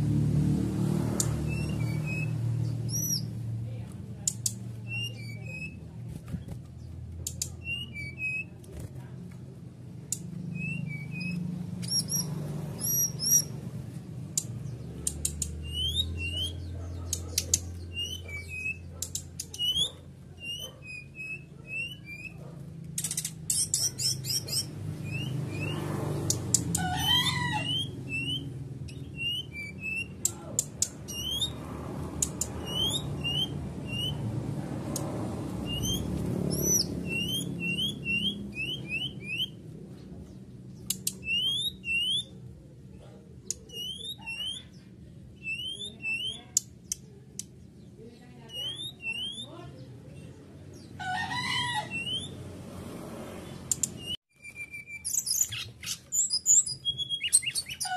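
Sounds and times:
bird chirping: 0.8 - 6.0, 6.7 - 8.6, 10.0 - 57.9
sharp clicks: 14.3 - 15.6, 22.8 - 23.8, 26.2 - 26.8, 40.8 - 41.3, 53.7 - 54.1.

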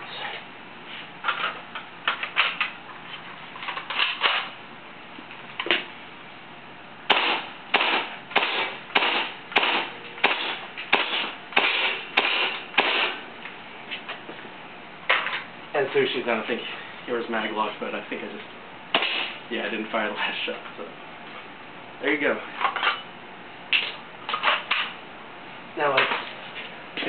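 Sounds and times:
airsoft rifle shots: 7.1 - 13.2, 18.9 - 19.4.

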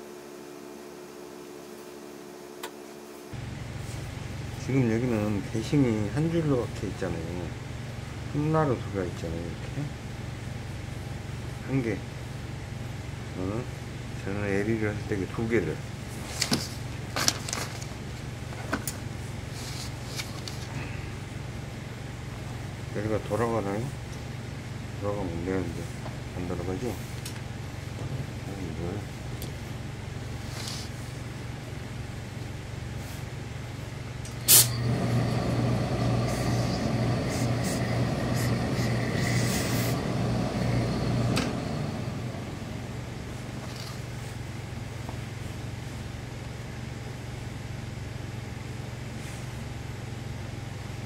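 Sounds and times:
steady low hum: 0.0 - 51.0
steam iron burst of steam: 34.4 - 41.3
steam hissing: 34.4 - 42.8.

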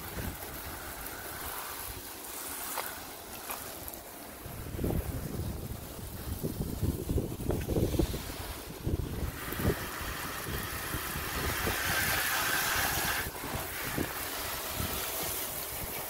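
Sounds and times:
water spraying from hose nozzle: 0.0 - 16.0.

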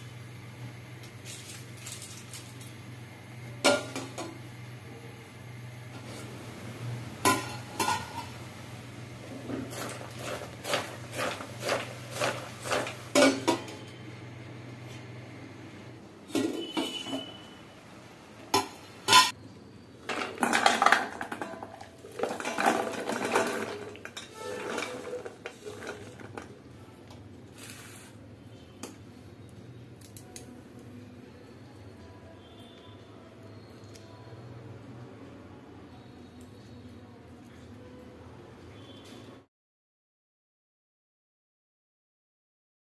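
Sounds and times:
steel vessel and plate clanking: 18.6 - 19.4, 20.1 - 26.4
metal scraping and rattling: 22.2 - 26.4.

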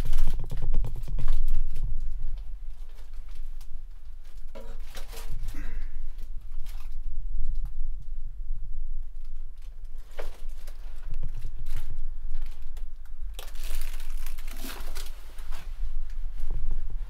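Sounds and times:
crinkling rustles: 0.0 - 8.2, 9.0 - 17.0
steady low rumble: 0.0 - 17.0.

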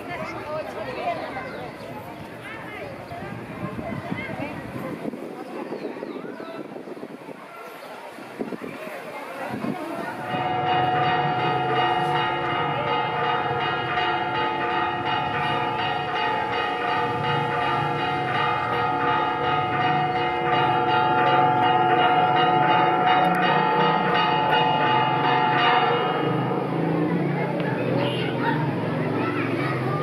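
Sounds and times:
church bells ringing: 10.0 - 30.0.

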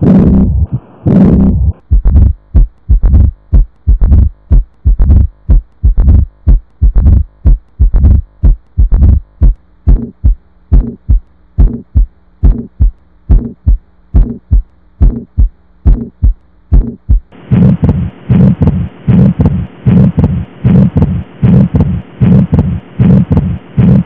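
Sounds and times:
faint hum: 0.0 - 24.0
heartbeat thumps through stethoscope: 0.0 - 24.0
steady hiss: 17.3 - 23.9.

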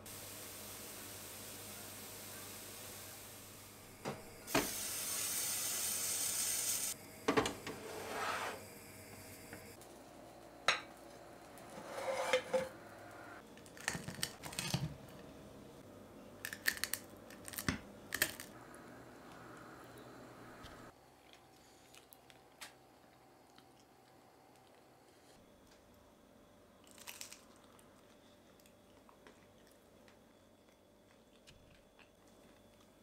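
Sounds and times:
steady hiss: 0.0 - 7.0
knife scraping on plate: 11.6 - 12.7
frying pan knocking and scraping: 11.8 - 12.8.

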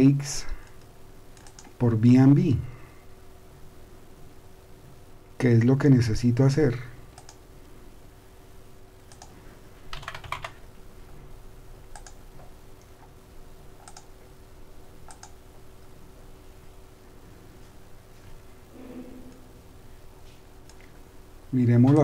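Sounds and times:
faint steady hum: 0.0 - 22.0
mouse clicks: 0.7 - 1.8, 9.1 - 9.4, 11.9 - 12.2, 13.8 - 14.1, 15.1 - 15.4.

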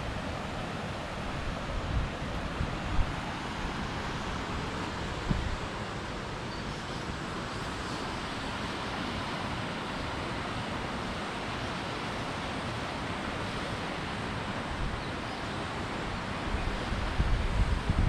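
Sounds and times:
river rapids rushing: 0.0 - 17.8
wind rumble on microphone: 16.4 - 18.0.

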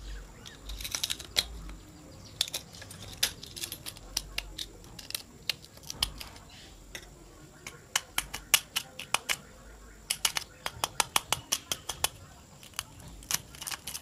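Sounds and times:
screwdriver scraping metal and glass: 0.4 - 1.7, 2.4 - 7.1, 12.6 - 14.0.

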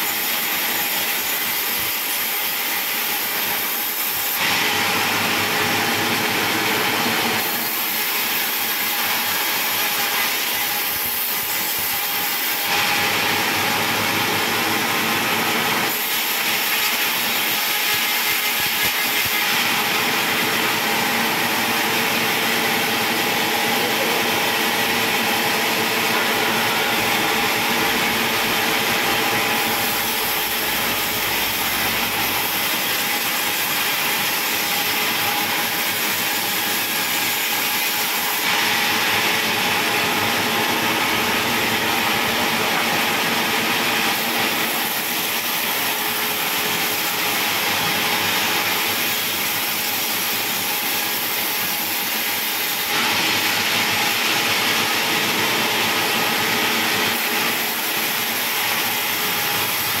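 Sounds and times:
band saw running: 0.0 - 60.0.

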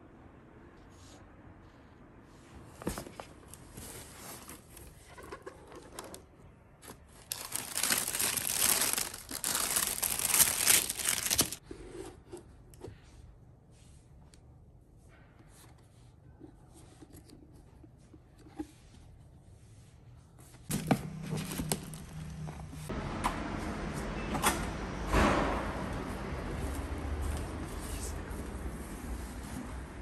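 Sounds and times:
tissue paper rustling: 6.8 - 11.6.

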